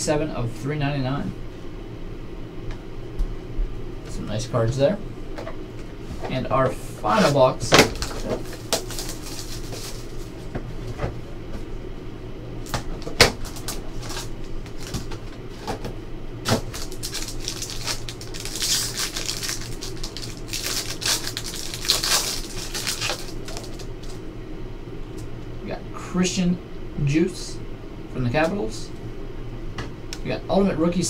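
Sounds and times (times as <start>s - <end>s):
foil wrapper crinkling: 7.2s - 10.5s, 12.6s - 15.7s, 16.4s - 24.2s.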